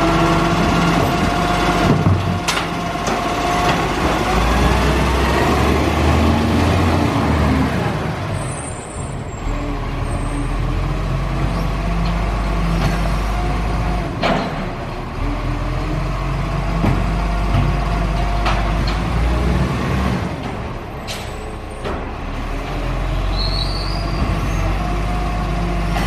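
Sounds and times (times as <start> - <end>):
diesel engine running: 0.0 - 26.0
high squeal: 23.3 - 24.7.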